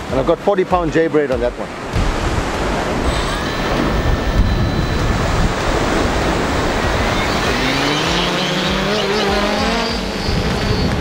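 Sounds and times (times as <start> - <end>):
surf washing onto beach: 0.0 - 11.0
wind on microphone: 1.7 - 11.0
drone motors whining: 3.0 - 11.0.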